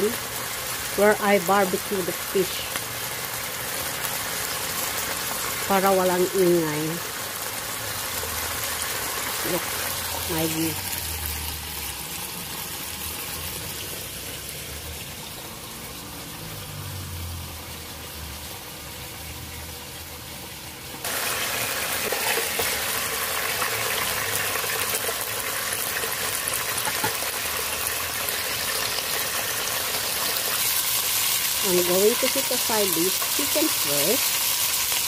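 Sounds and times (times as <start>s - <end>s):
chicken sizzling in hot oil: 0.0s - 35.0s.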